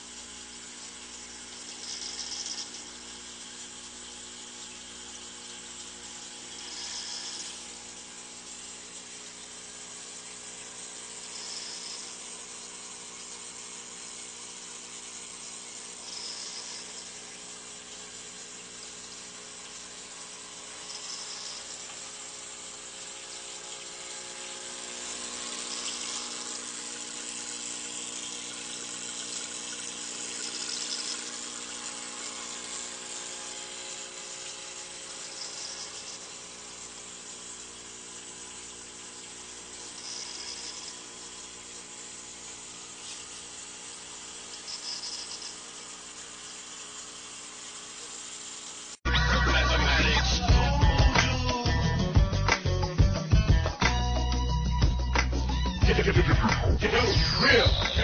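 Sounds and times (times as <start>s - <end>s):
water running and trickling: 0.0s - 49.0s
pump humming: 0.0s - 58.0s
bright hiss: 0.7s - 4.5s, 5.3s - 10.2s, 11.0s - 14.0s, 15.4s - 17.5s, 20.6s - 22.9s, 24.0s - 37.8s, 39.6s - 46.9s.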